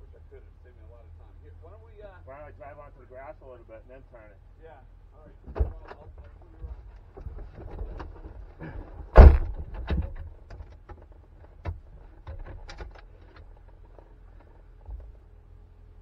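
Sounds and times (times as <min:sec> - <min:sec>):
light clicks and knocks in car: 0:05.4 - 0:15.3
loud thump: 0:09.1 - 0:10.2.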